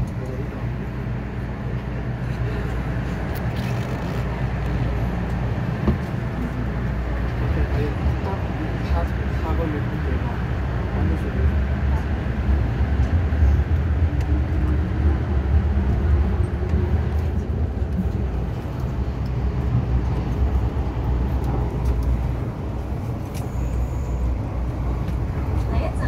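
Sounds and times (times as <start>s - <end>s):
train wheels rumbling on rail: 0.0s - 26.0s.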